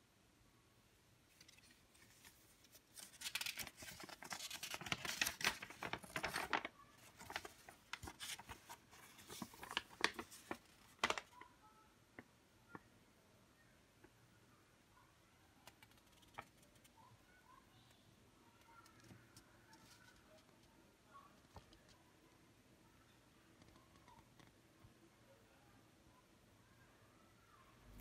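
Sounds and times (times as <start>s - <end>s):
crackling and rustling: 1.3s - 11.5s, 18.6s - 22.4s.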